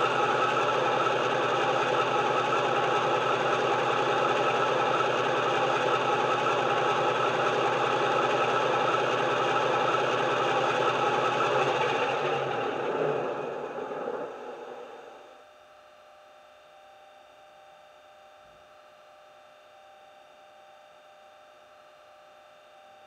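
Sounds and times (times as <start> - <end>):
recorded diesel engine idling: 0.0 - 15.3.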